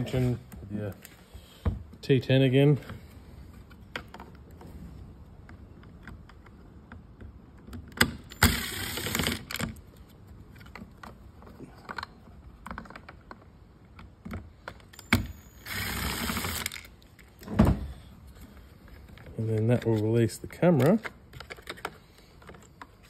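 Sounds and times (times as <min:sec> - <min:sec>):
cordless drill running: 0:08.4 - 0:09.5, 0:15.2 - 0:16.8.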